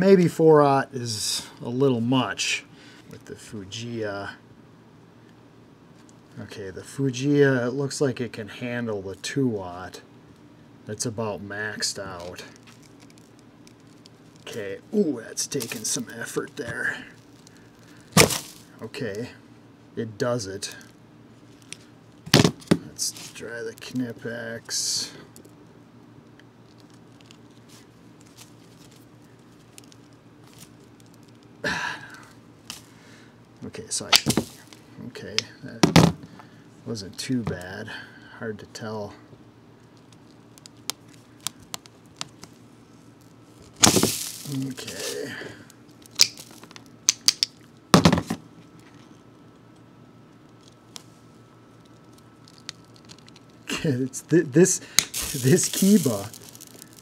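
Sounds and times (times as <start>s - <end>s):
cable strands crunching: 12.2s - 14.6s, 15.4s - 18.8s, 39.9s - 47.7s, 51.7s - 57.0s.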